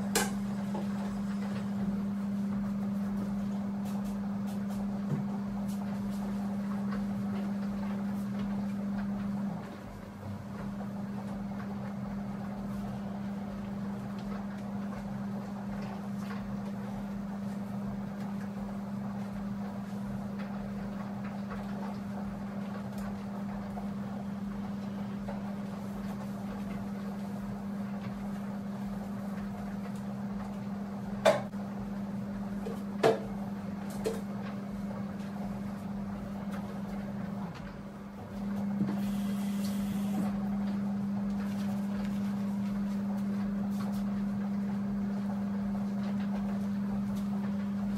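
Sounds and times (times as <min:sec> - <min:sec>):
steady low hum: 0:00.0 - 0:47.9.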